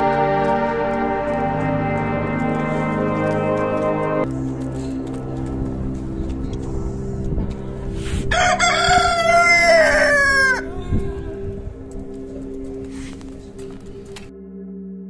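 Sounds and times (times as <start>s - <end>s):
rooster crowing: 8.3s - 11.4s.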